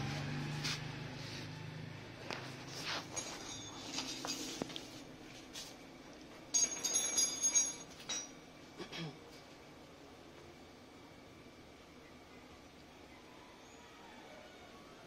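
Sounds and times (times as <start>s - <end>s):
metal parts clinking: 6.5s - 8.4s.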